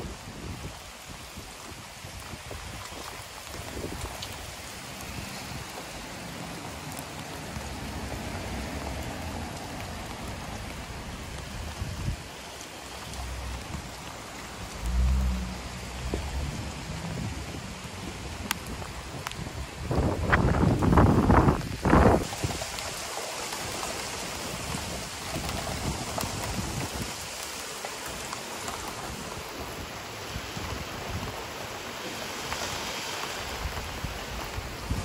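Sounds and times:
rain falling: 0.0s - 35.0s
thunder rumble: 12.9s - 22.9s.

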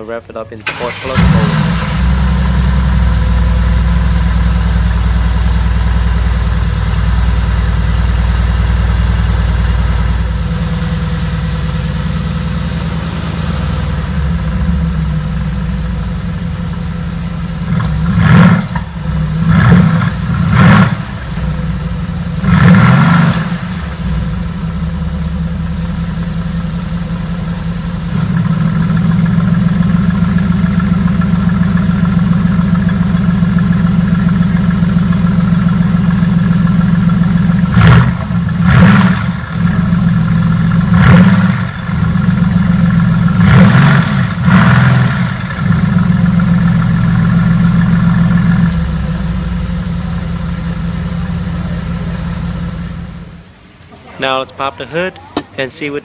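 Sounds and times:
car engine idling: 0.0s - 56.0s
engine revving: 0.6s - 4.4s, 17.6s - 24.6s, 28.1s - 48.9s.

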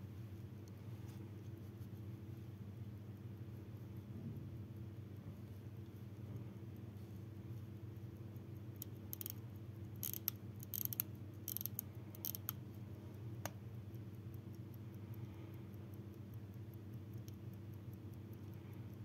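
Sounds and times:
steady low hum: 0.0s - 19.0s
pocket watch metallic clicks: 8.6s - 12.7s, 15.7s - 19.0s.

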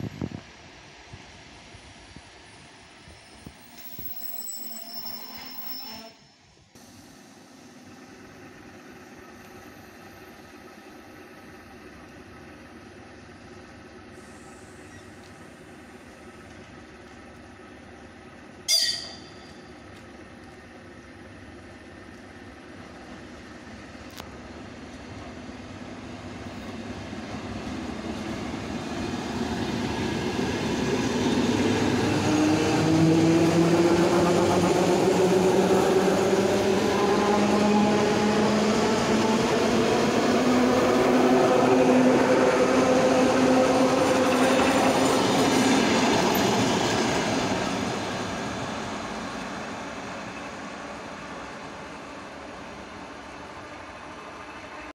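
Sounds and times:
train wheels rumbling on rails: 6.8s - 54.9s
train whine rising in pitch: 25.6s - 53.2s.

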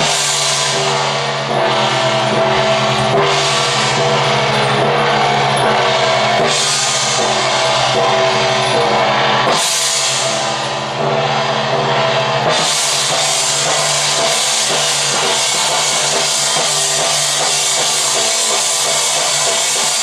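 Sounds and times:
sustained held tones: 0.0s - 12.5s
cymbals crashing: 0.0s - 20.0s
drum beat: 0.0s - 20.0s.

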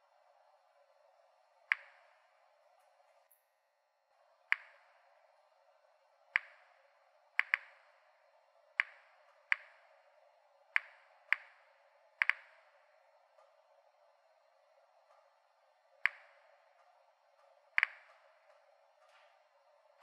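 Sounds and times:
geiger counter clicking: 1.7s - 2.2s, 4.5s - 5.0s, 6.3s - 6.8s, 7.4s - 8.1s, 8.7s - 12.9s, 16.0s - 16.7s, 17.6s - 18.6s.

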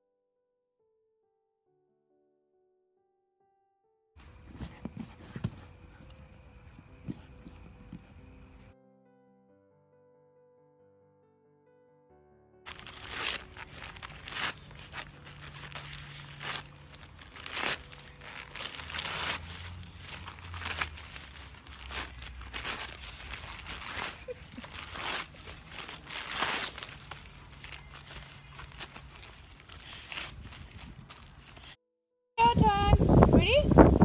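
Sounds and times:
dog ripping wrapping paper: 12.7s - 31.8s.

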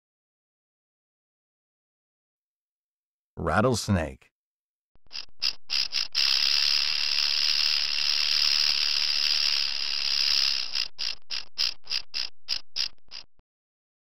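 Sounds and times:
rattlesnake rattle buzzing: 5.0s - 13.4s.

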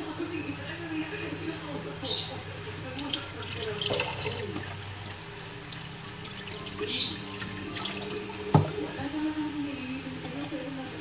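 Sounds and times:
tap water running into sink: 3.0s - 8.9s.

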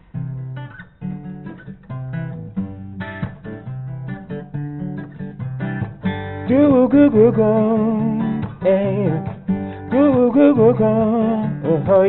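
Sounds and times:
acoustic guitar strumming: 0.0s - 12.0s
wordless vocal with vibrato: 6.5s - 12.0s.

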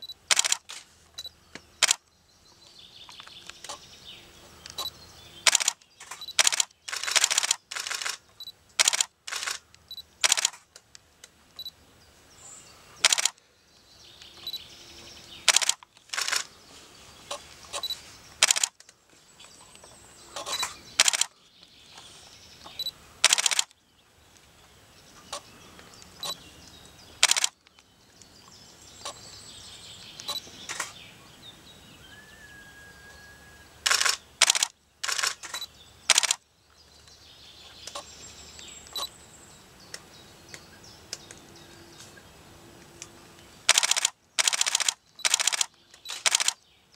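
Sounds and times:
birds chirping faintly: 0.0s - 46.9s
camera shutters clicking: 0.3s - 0.9s, 1.8s - 2.0s, 4.7s - 10.8s, 13.0s - 13.4s, 15.4s - 16.5s, 17.7s - 18.9s, 20.4s - 21.4s, 23.2s - 23.7s, 27.2s - 27.6s, 30.2s - 31.0s, 33.8s - 36.4s, 43.7s - 46.6s.

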